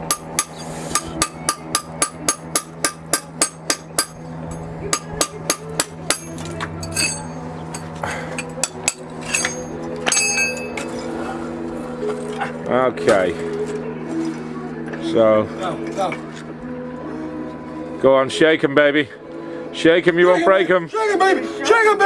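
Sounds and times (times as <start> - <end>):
hammer striking bricks: 0.0 - 4.2, 4.9 - 7.2.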